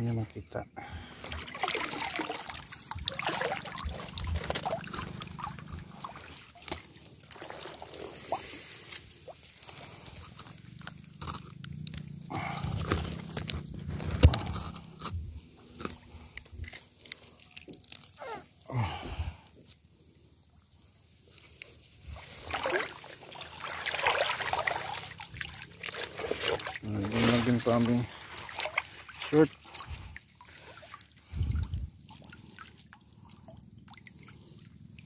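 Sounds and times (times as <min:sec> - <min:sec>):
clothes rustling and crinkling: 0:02.8 - 0:18.6, 0:21.2 - 0:30.7
rice stalks brushing: 0:07.4 - 0:10.3, 0:22.0 - 0:24.7.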